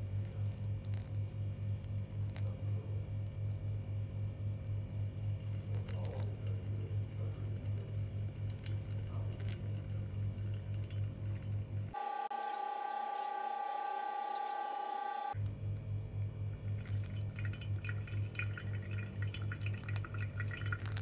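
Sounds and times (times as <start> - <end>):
water poured onto coffee grounds: 0.1 - 1.2, 4.9 - 12.0, 16.5 - 21.0
steady high tone: 12.0 - 15.4.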